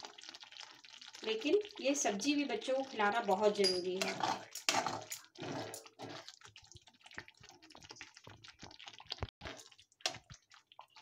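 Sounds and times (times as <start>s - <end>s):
spoon stirring thick gravy: 2.8s - 11.0s
spoon clicking on metal pot: 3.6s - 5.2s.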